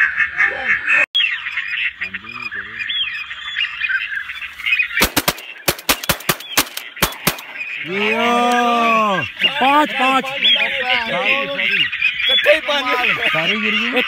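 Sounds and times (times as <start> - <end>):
waterbirds calling: 0.0 - 14.0
shotgun shots: 5.0 - 7.8.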